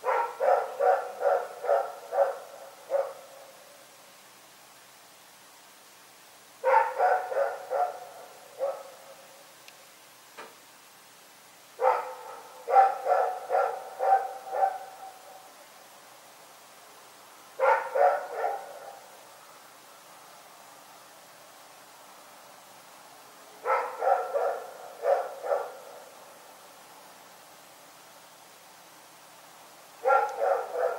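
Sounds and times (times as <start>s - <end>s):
dog barking: 0.0s - 3.3s, 6.6s - 9.2s, 11.8s - 15.4s, 17.6s - 19.1s, 23.6s - 26.1s, 30.0s - 30.9s.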